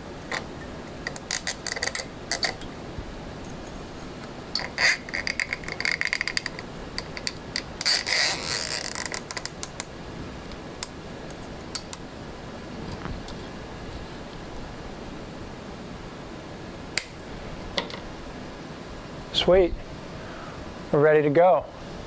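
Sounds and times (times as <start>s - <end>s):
zip tie ratchet clicking: 7.2s - 9.9s.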